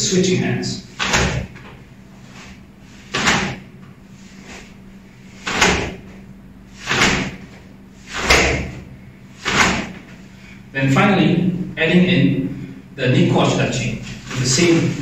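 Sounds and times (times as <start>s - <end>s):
cloth uniform snapping and swishing: 1.0s - 6.2s, 6.8s - 8.8s, 9.4s - 10.2s.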